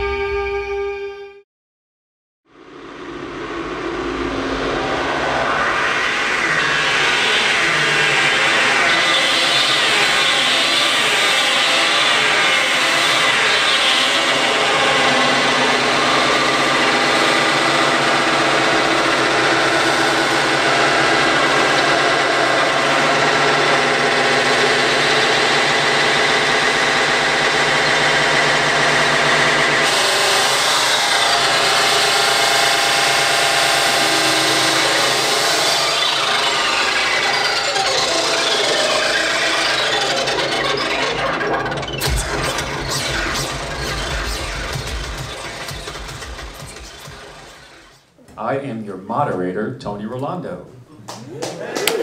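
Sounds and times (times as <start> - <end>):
grinding synthesizer noise: 2.5 - 48.2
layered synth drones: 2.6 - 48.1.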